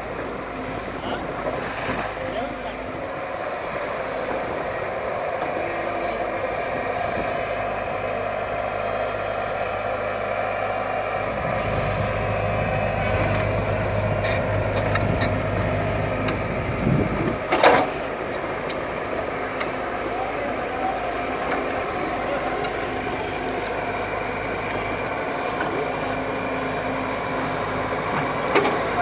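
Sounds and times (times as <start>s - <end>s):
excavator diesel engine running: 0.0s - 29.0s.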